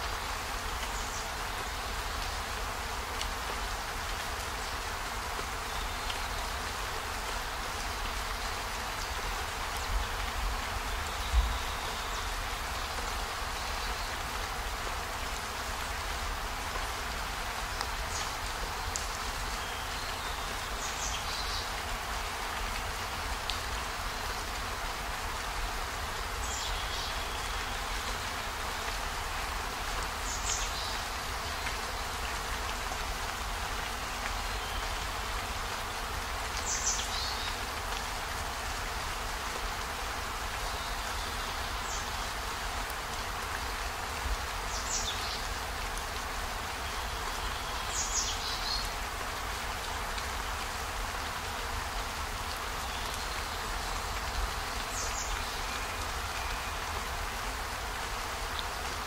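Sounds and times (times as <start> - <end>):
steady rain falling: 0.0 - 59.0.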